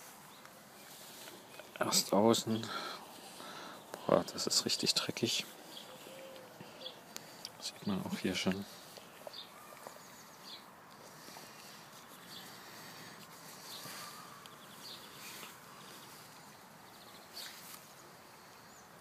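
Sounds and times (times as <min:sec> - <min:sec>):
bird chirps: 0:05.6 - 0:07.1.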